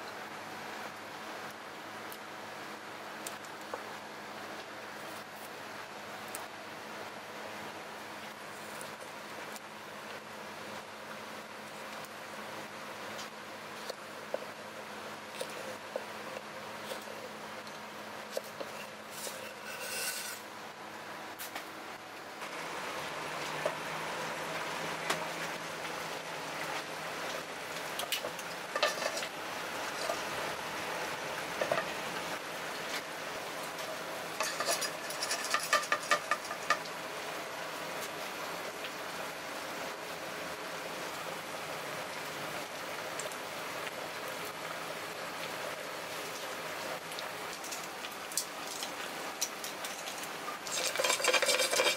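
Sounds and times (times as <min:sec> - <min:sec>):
garlic sizzling in hot oil: 0:12.0 - 0:20.5, 0:22.4 - 0:37.4, 0:47.0 - 0:51.9
oil hissing in frying pan: 0:34.2 - 0:37.3, 0:50.6 - 0:51.9
clicks and clatter: 0:34.4 - 0:36.9, 0:47.5 - 0:51.9.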